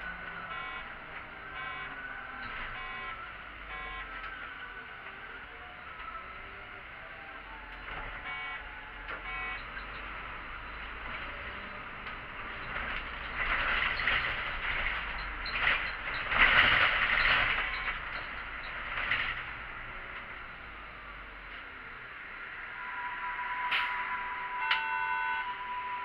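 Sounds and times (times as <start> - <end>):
short electronic beeps: 0.0 - 4.4, 8.1 - 10.9, 17.1 - 18.8, 22.7 - 26.0
bus air brakes hissing: 22.8 - 26.0.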